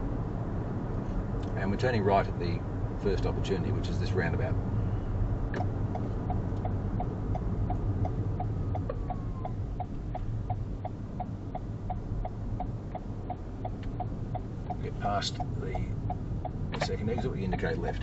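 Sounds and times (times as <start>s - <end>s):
engine and road noise in cabin: 0.0s - 18.0s
turn signal ticking: 5.5s - 18.0s.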